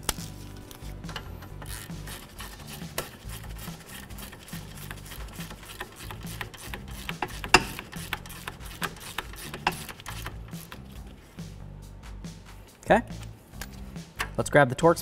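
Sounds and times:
ratchet clicking: 1.0 - 10.9.

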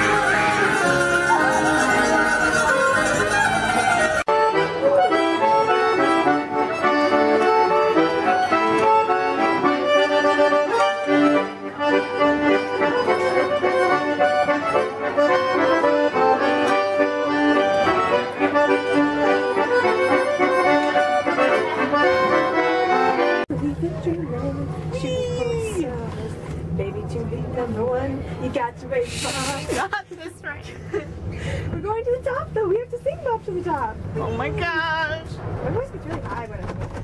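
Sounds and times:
lively accordion folk tune: 0.0 - 24.2, 29.0 - 30.4.

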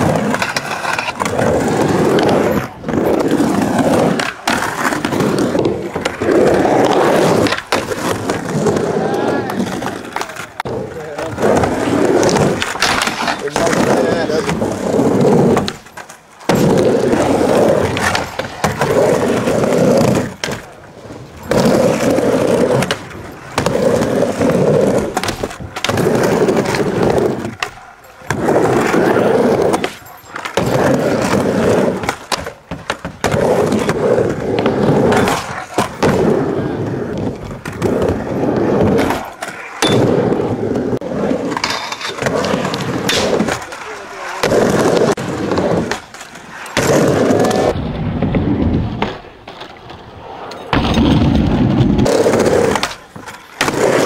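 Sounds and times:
skateboard wheels rolling on ramp: 0.0 - 54.0.

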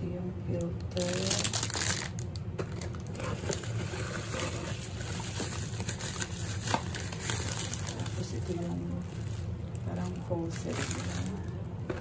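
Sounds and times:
low steady hum: 0.0 - 12.0
bubble wrap crinkling: 0.9 - 12.0.

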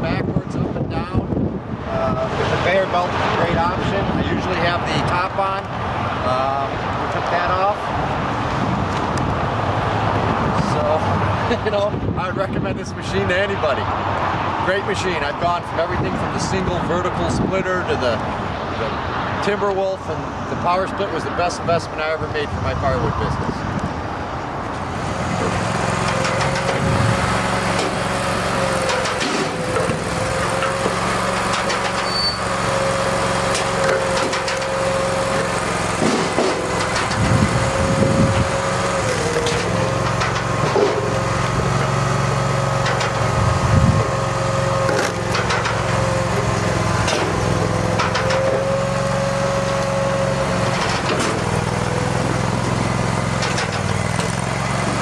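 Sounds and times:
log splitter engine humming: 24.7 - 55.0.

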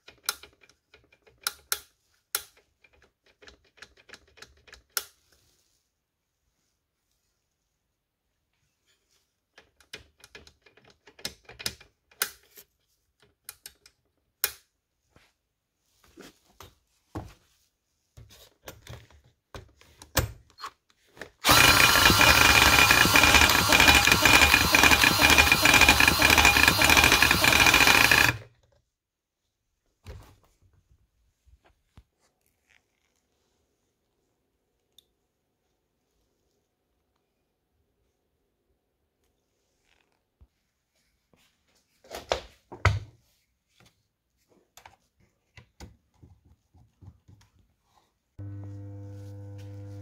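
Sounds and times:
cordless drill whirring: 21.4 - 28.5, 48.4 - 50.0.

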